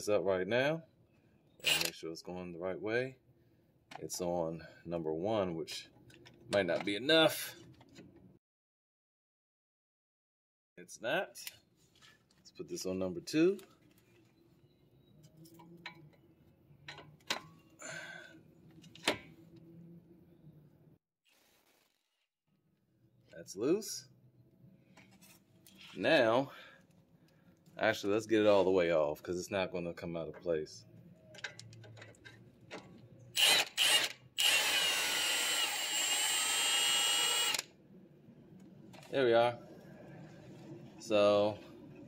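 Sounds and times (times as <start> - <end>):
power tool motor whine: 33.4 - 37.7.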